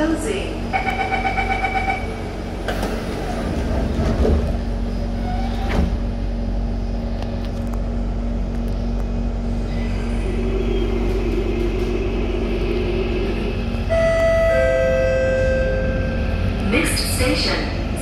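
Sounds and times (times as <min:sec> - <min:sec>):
train hum: 0:00.0 - 0:18.0
train door chime beeping: 0:00.7 - 0:02.2, 0:13.8 - 0:16.4
sliding train doors shutting: 0:00.8 - 0:06.2, 0:09.6 - 0:18.0.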